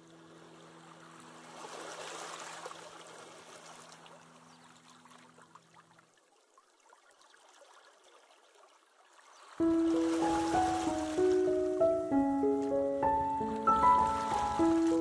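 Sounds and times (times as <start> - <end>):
rushing water: 0.0 - 15.0
low held chord: 9.6 - 15.0.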